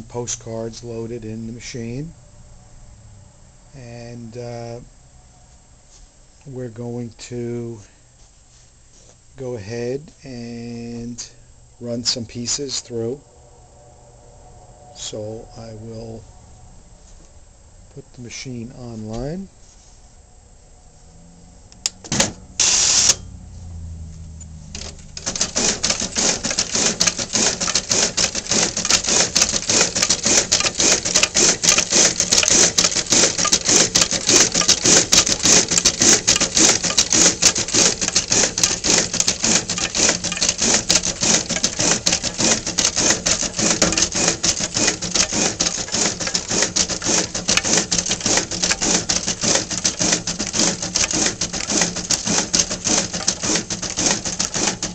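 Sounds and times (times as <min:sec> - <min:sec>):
printer motor hum: 0:21.8 - 0:54.9
fast clicking and whirring printer: 0:21.9 - 0:23.2, 0:24.8 - 0:54.9
short mechanical bursts: 0:22.1 - 0:23.2, 0:24.8 - 0:54.9.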